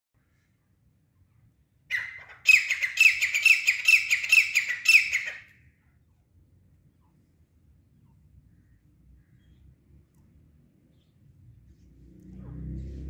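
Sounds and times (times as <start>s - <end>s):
francolin calling: 1.9s - 5.5s.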